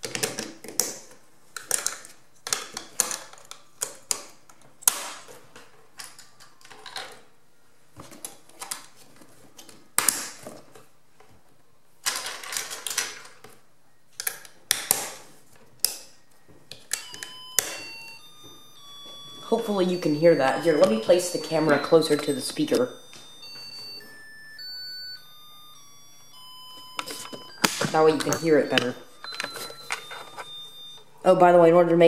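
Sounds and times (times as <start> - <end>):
plastic parts clicking and snapping: 0.0 - 7.3, 12.0 - 17.8
electronic tune of beeping notes: 17.0 - 31.1.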